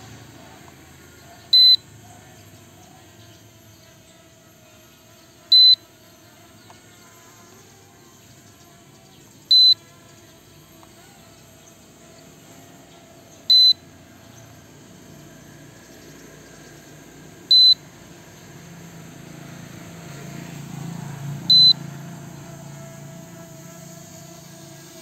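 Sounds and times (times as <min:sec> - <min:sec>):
short high-pitched warning beeps: 0:01.5 - 0:01.8, 0:05.5 - 0:05.8, 0:09.5 - 0:09.8, 0:13.5 - 0:13.8, 0:17.5 - 0:17.8, 0:21.5 - 0:21.8.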